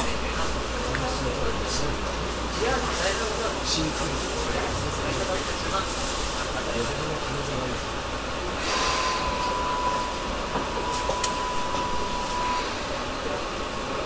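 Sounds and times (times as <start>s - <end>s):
train air conditioning running: 0.0s - 14.0s
steady high tone: 8.5s - 13.4s.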